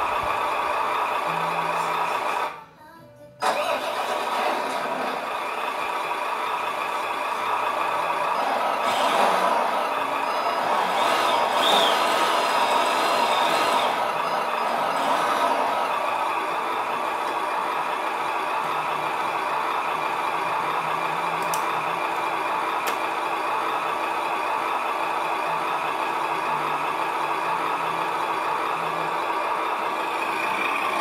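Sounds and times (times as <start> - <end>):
simulated engine idle from small speaker: 0.0 - 31.0.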